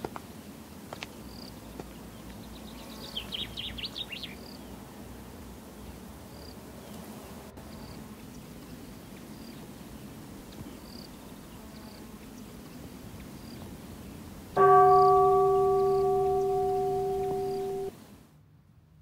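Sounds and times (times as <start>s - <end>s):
temple bell ringing: 14.6s - 17.9s.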